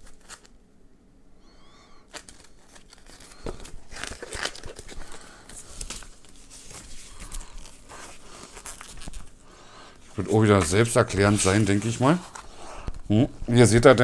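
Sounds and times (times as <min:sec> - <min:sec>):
paper and cardboard rustling: 0:00.0 - 0:00.5, 0:02.1 - 0:09.4, 0:10.0 - 0:12.5.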